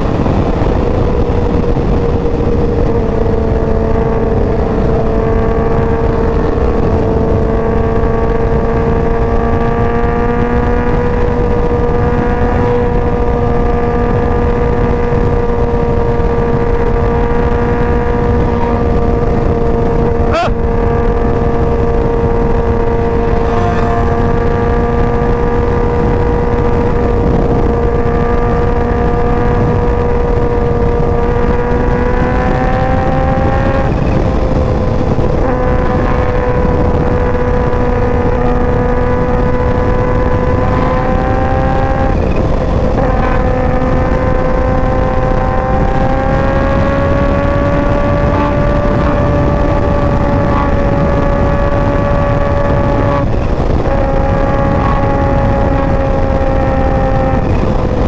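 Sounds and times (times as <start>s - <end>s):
motorcycle engine cruising: 0.0s - 58.0s
wind rumble: 0.0s - 58.0s.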